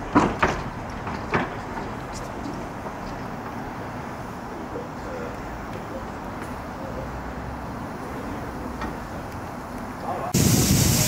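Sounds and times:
steam locomotive hissing: 1.4 - 11.0
faint voices: 3.6 - 9.3, 9.9 - 11.0.

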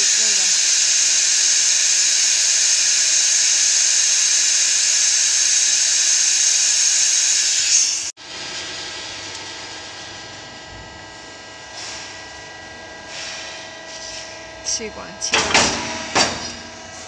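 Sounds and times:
machine high-pitched hiss: 0.0 - 8.1, 13.1 - 17.0.

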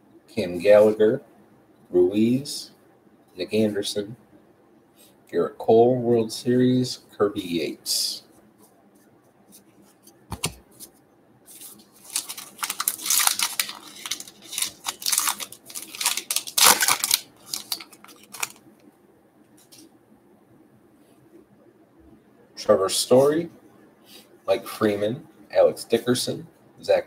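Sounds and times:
wrapper tearing and crinkling: 11.6 - 18.6.

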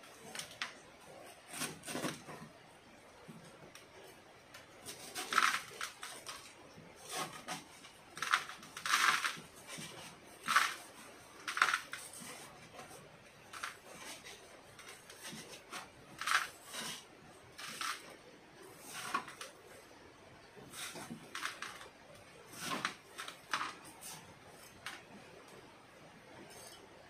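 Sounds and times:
stick scraping gritty soil: 4.8 - 19.7.

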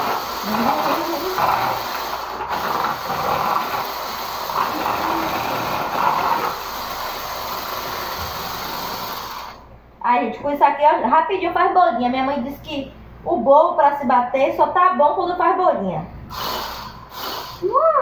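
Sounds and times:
stick mixer whisking batter: 0.0 - 9.6.

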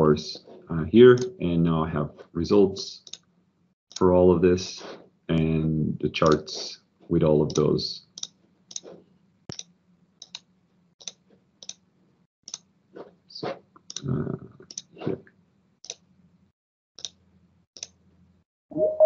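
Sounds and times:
computer mouse clicking: 3.0 - 3.3, 6.2 - 6.5, 7.5 - 8.9, 9.5 - 11.8, 12.5 - 12.7, 14.7 - 14.9, 15.8 - 16.0, 17.0 - 17.2, 17.8 - 18.0.

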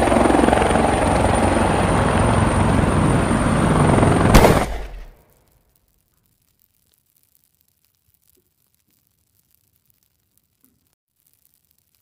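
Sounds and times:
helicopter rotor beating: 0.0 - 4.6
explosion bang: 4.3 - 5.2.

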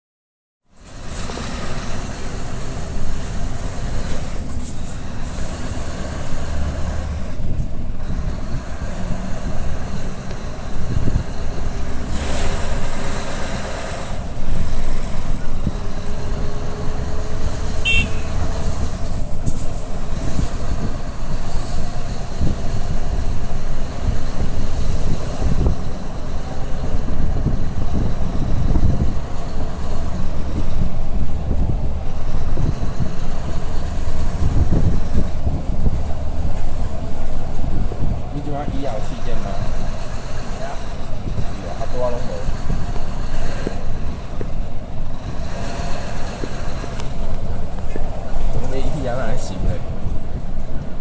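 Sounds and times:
road noise: 0.6 - 51.0
truck diesel engine rumble: 0.7 - 51.0
wind noise: 1.1 - 51.0.

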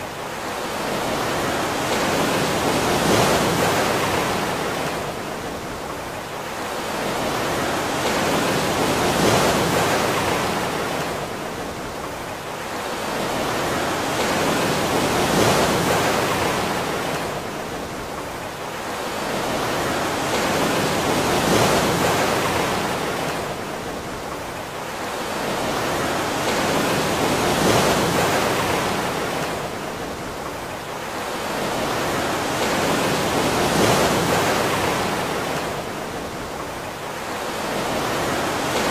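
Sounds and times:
rushing water: 0.0 - 38.9.

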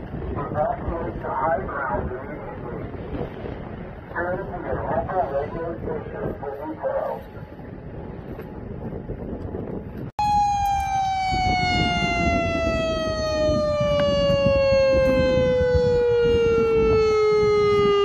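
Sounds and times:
warning siren wail: 10.2 - 18.0.

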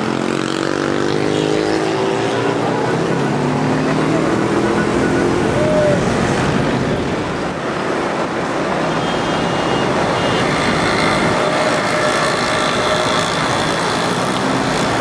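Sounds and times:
busy city street traffic: 0.0 - 15.0.

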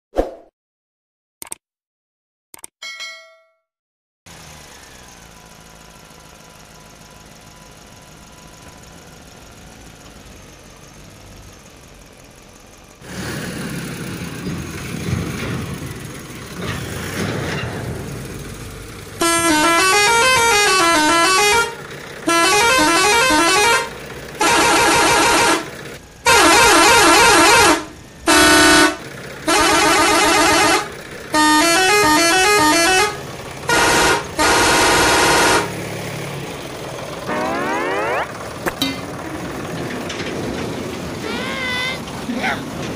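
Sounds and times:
warbling electronic horn tones: 19.2 - 25.7, 26.3 - 35.7, 37.3 - 38.4.

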